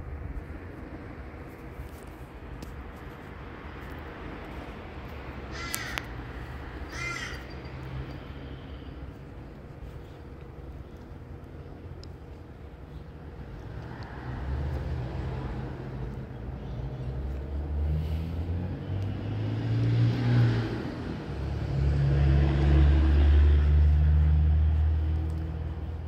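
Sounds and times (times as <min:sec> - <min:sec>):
vehicle engine rumbling past: 0:12.9 - 0:26.0.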